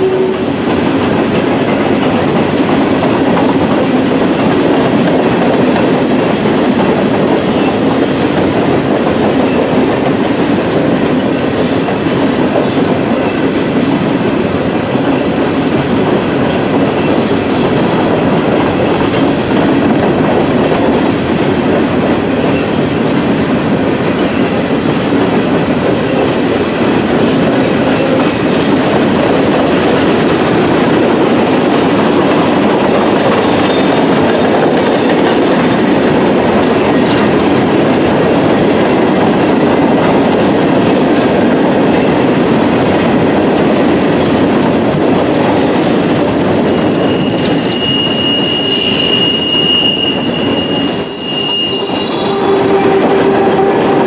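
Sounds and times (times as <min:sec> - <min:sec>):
train wheels rumbling and clattering: 0:00.0 - 0:54.0
high wheel squeal: 0:41.3 - 0:54.0.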